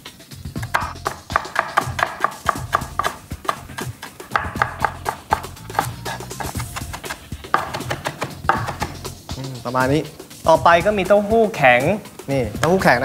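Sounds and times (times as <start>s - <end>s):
background music: 0.0s - 13.0s
knife chopping on wooden board: 0.6s - 9.0s.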